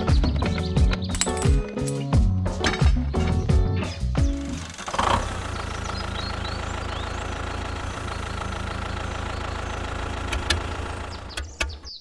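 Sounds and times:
tractor engine idling: 2.6 - 12.0.

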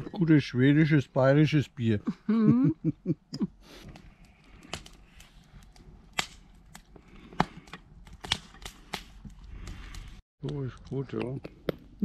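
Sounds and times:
wood fire crackling: 3.6 - 12.0.

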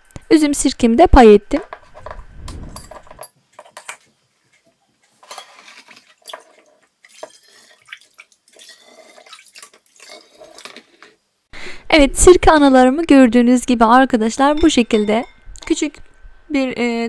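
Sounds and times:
liquid splashing and trickling: 5.6 - 11.0.

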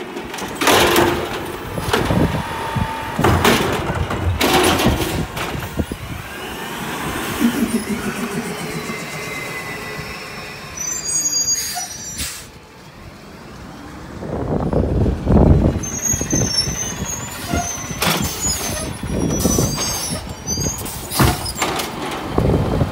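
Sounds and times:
garbage truck engine: 0.0 - 22.9
brake squeals: 4.4 - 12.9, 15.6 - 22.1
air brake hisses: 7.3 - 12.6.

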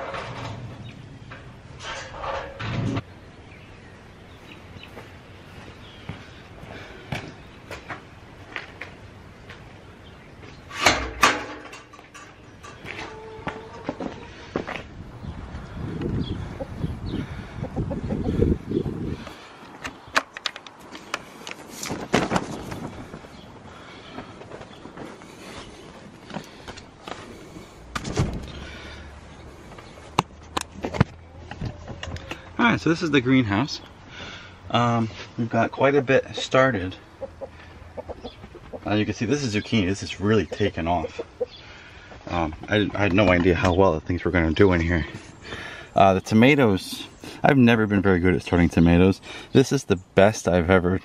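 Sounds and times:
footsteps on concrete: 4.8 - 9.8
metal gate clanking shut: 10.7 - 13.8.

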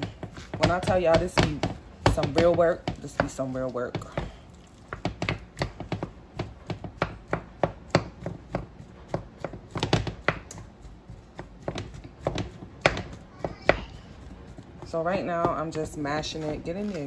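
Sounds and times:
wooden spoon knocking metal saucepan: 0.0 - 10.7.

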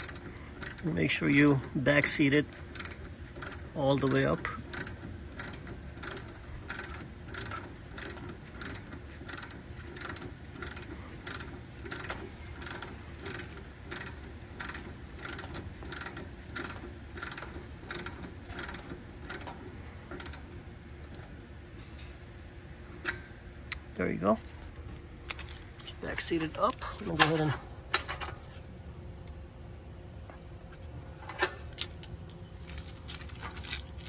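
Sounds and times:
ratchet wrench clicking: 0.0 - 21.3.

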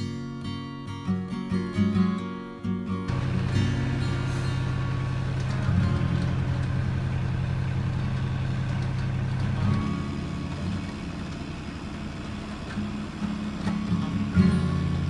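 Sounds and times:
diesel engine running: 3.1 - 15.0.

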